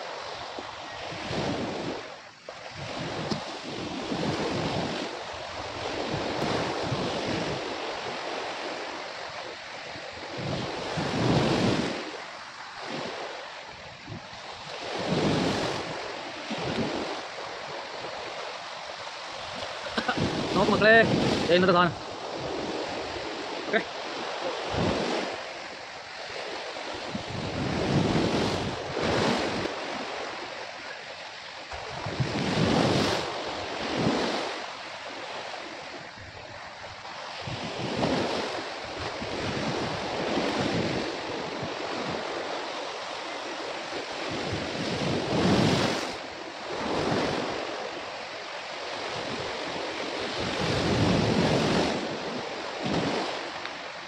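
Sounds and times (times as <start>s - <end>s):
sea waves on rocky shore: 0.0s - 54.0s
wind buffeting microphone: 0.5s - 8.4s, 10.3s - 12.1s, 13.8s - 23.6s, 24.2s - 25.5s, 26.2s - 30.4s, 31.7s - 34.6s, 35.9s - 42.5s, 44.2s - 47.8s, 49.1s - 53.6s.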